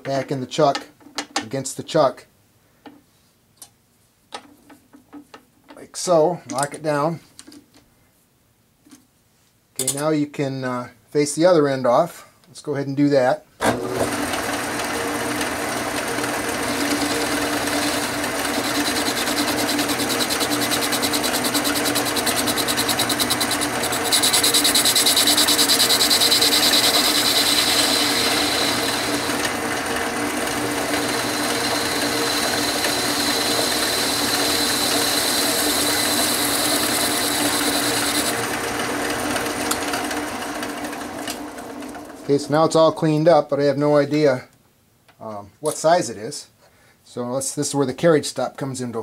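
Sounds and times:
lathe motor humming: 0:13.7 - 0:42.2.

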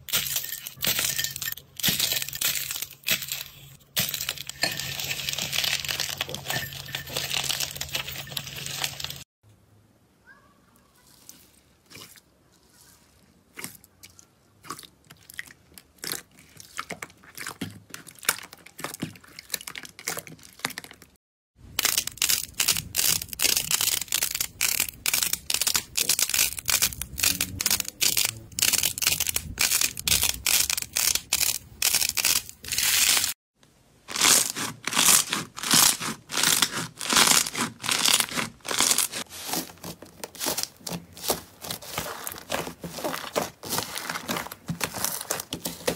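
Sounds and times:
slime crackling: 0:22.2 - 0:33.3, 0:34.1 - 0:45.9.

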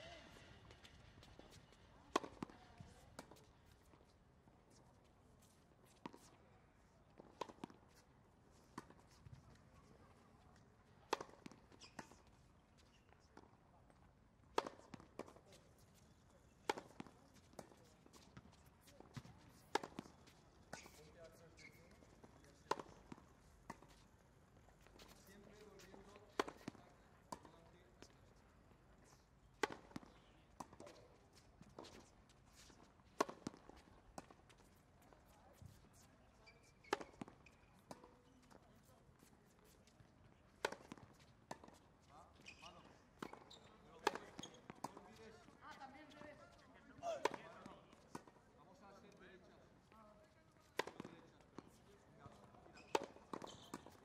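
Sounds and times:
tennis ball hit by racket: 0:00.0 - 0:02.5, 0:11.1 - 0:11.6, 0:14.5 - 0:15.4, 0:16.6 - 0:17.8, 0:18.8 - 0:21.0, 0:22.7 - 0:24.0, 0:25.8 - 0:27.5, 0:29.6 - 0:31.0, 0:33.2 - 0:34.5, 0:40.6 - 0:41.8, 0:43.2 - 0:45.1, 0:47.0 - 0:48.3, 0:50.7 - 0:51.1, 0:52.9 - 0:54.0
tennis ball bouncing on hard court: 0:00.0 - 0:03.4, 0:11.1 - 0:12.1, 0:14.5 - 0:15.4, 0:16.6 - 0:21.0, 0:22.6 - 0:24.0, 0:25.0 - 0:27.6, 0:29.5 - 0:31.1, 0:31.7 - 0:38.6, 0:40.6 - 0:41.8, 0:42.4 - 0:45.3, 0:47.0 - 0:48.3, 0:50.7 - 0:51.5, 0:52.2 - 0:54.0.

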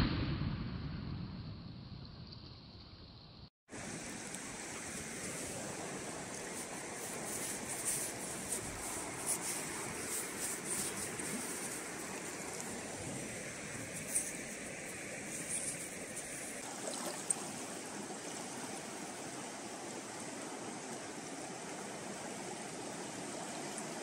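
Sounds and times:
fast river rushing: 0:03.7 - 0:24.0
hand digging wet sand: 0:06.5 - 0:12.8.

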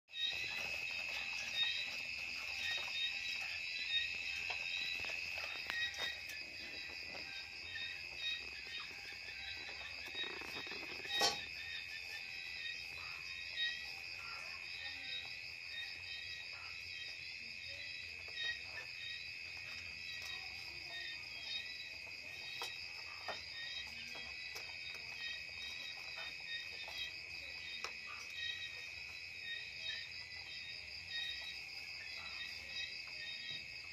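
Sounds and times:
high insect chirring: 0:00.1 - 0:15.0.

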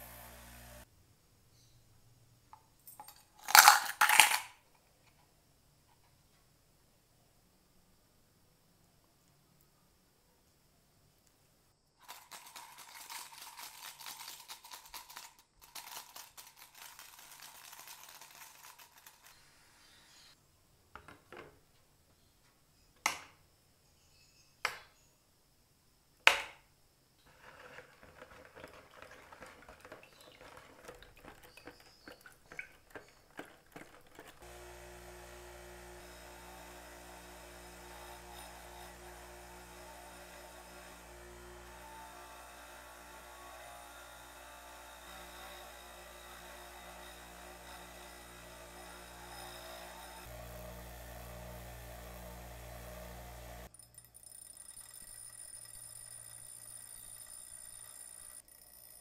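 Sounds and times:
bench grinder motor humming: 0:00.0 - 0:00.9, 0:34.4 - 0:53.7, 0:54.5 - 0:58.4
liquid pouring into plastic cup: 0:27.5 - 0:34.4.

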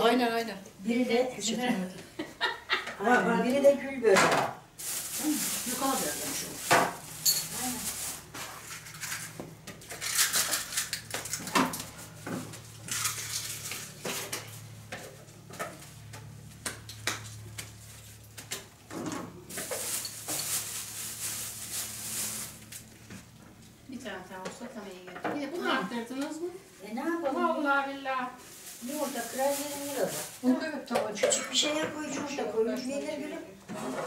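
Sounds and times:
dishes and cutlery clattering: 0:07.2 - 0:07.6.

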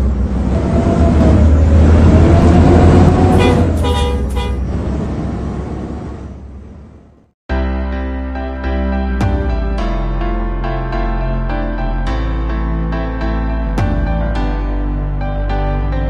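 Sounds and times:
bus engine rumbling: 0:00.0 - 0:07.4
bus horn blaring: 0:02.5 - 0:04.7.

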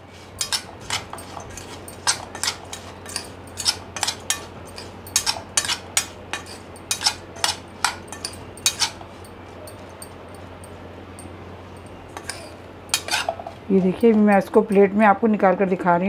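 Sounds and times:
metal spoon scraping a bowl: 0:00.4 - 0:09.8, 0:12.2 - 0:14.6.

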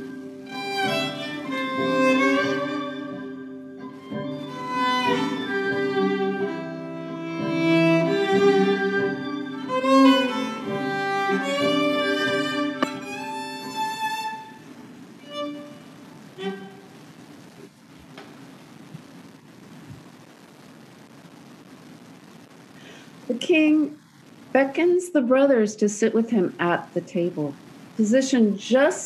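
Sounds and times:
solo violin melody: 0:00.0 - 0:14.6, 0:15.2 - 0:17.0.

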